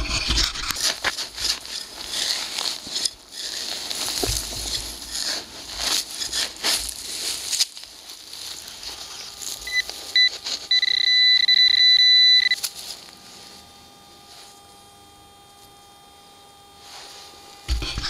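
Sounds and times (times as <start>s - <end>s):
rustling of dry grass and soil: 0.0s - 11.2s, 12.5s - 14.8s, 16.8s - 18.0s
metal detector beeping: 9.6s - 12.9s.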